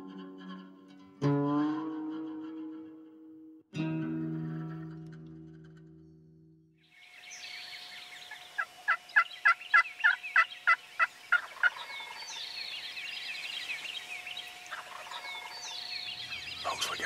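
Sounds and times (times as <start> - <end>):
songbirds chirping: 6.8 - 17.0
turkey calling: 7.4 - 17.0.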